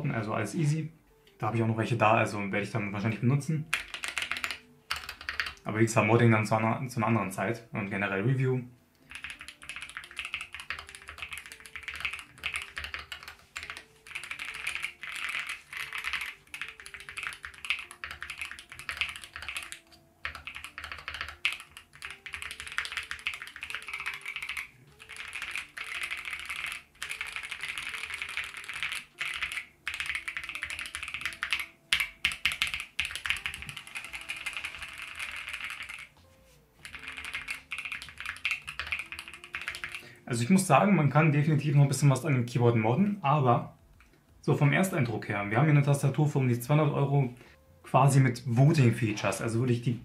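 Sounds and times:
faint background music: 0:00.0 - 0:50.0
keyboard keystroke clacks: 0:09.1 - 0:36.2, 0:36.8 - 0:40.0.

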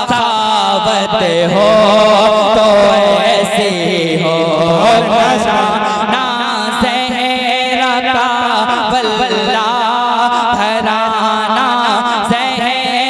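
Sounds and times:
man singing: 0:00.0 - 0:13.0
steady held drone: 0:04.1 - 0:11.6.

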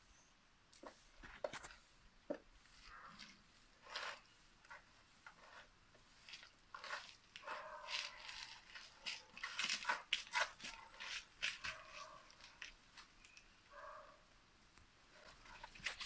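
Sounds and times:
hands kneading damp soil: 0:02.6 - 0:13.4.

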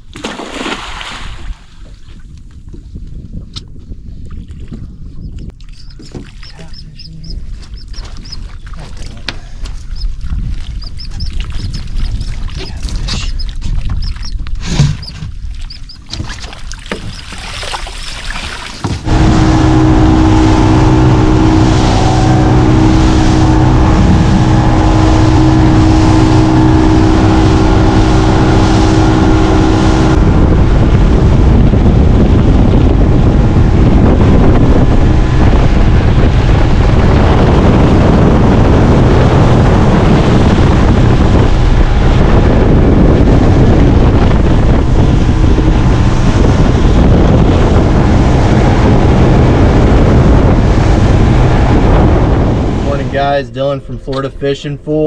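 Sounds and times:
wind and water rushing: 0:00.0 - 0:55.0
quiet water sounds: 0:04.2 - 0:26.8
outboard motor running: 0:05.5 - 0:55.0.

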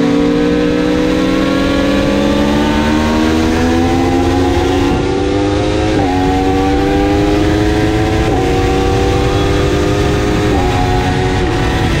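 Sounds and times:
motorcycle engine at high revs: 0:00.0 - 0:12.0.

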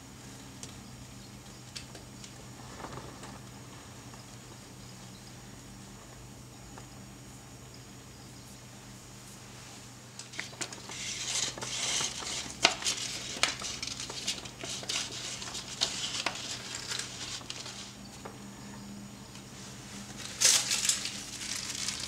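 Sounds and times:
plastic collar rustling and crackling: 0:10.2 - 0:18.3, 0:20.1 - 0:22.0.

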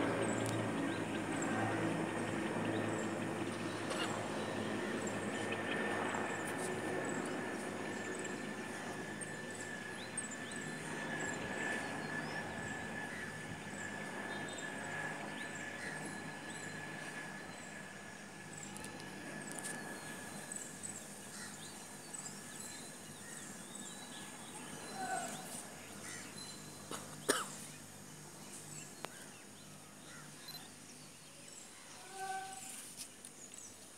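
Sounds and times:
helicopters droning overhead: 0:00.0 - 0:32.5
birds calling: 0:20.0 - 0:28.2.

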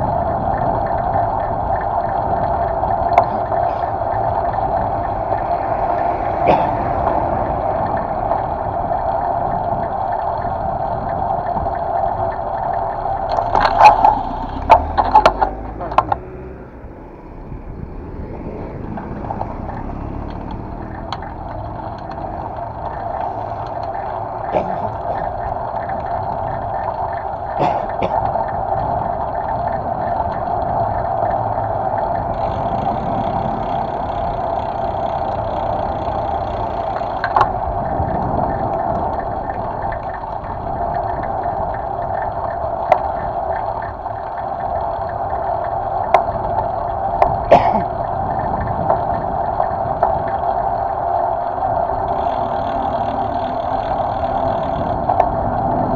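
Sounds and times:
wind and road noise: 0:00.0 - 0:55.9.

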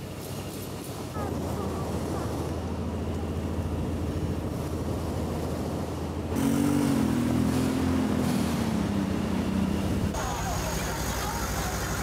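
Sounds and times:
vehicle engine drone: 0:00.0 - 0:12.0
steady low rumble: 0:01.0 - 0:06.4.

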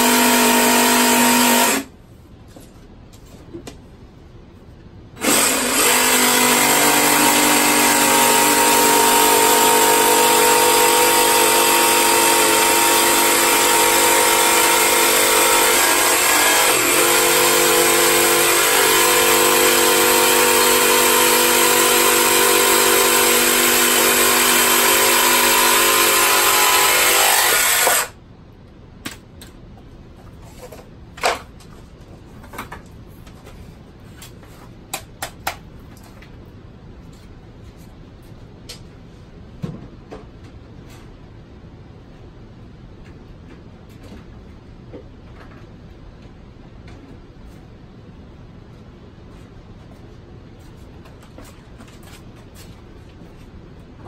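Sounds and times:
jigsaw cutting plastic pipe: 0:00.0 - 0:01.9, 0:05.2 - 0:28.2.

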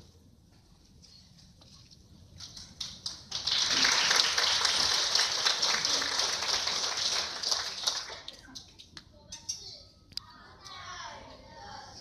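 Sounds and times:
audience applauding: 0:02.8 - 0:08.5.

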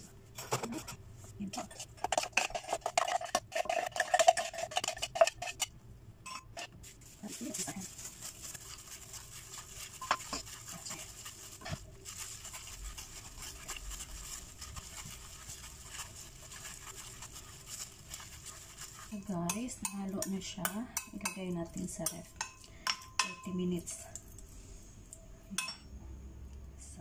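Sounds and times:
hands kneading raw meat: 0:06.8 - 0:22.0.

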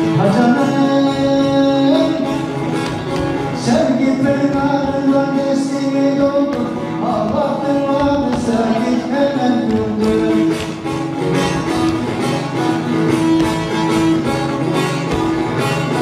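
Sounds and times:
person singing: 0:00.0 - 0:10.9.

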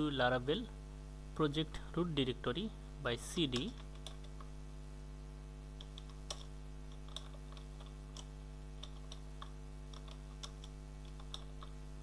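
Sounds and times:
low electrical hum: 0:00.0 - 0:12.0
keyboard keys clicking: 0:05.8 - 0:11.8.

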